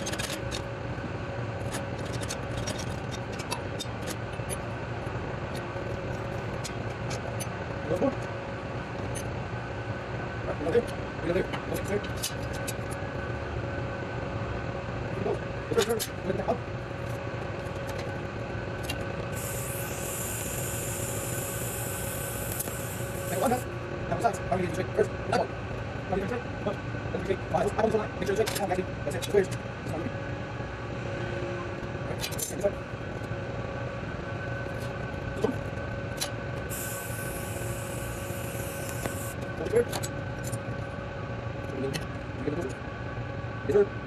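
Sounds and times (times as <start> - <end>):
low shop hum: 0.0 - 44.0
welding torch hiss: 19.3 - 23.7, 36.7 - 39.4.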